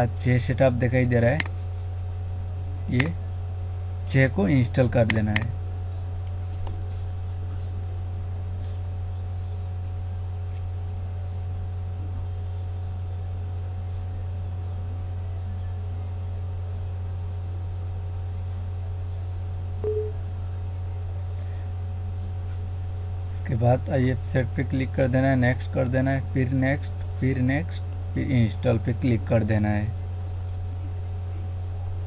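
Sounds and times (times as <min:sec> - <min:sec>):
low electrical hum: 0:00.0 - 0:32.0
faint high tones: 0:19.8 - 0:20.2
short tone: 0:19.8 - 0:20.2.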